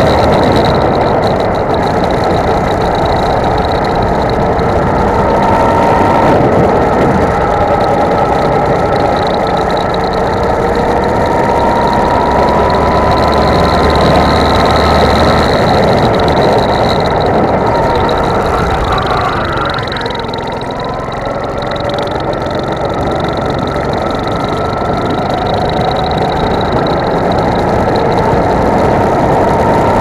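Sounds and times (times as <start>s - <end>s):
go-kart engine running hard: 0.0s - 30.0s
wind and road noise: 0.0s - 30.0s.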